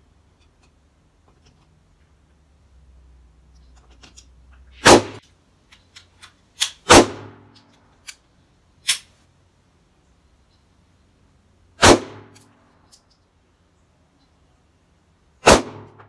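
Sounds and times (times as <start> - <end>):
handgun shots echoing: 4.8 - 5.2, 6.6 - 7.6, 15.4 - 16.0.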